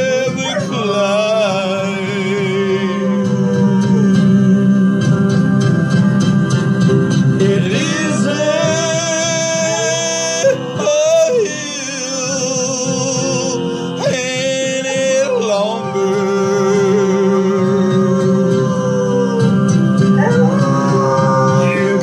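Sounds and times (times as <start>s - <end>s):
dog howling: 0.0s - 6.6s, 7.4s - 22.0s
country song with guitar: 0.0s - 22.0s
man singing: 0.0s - 22.0s.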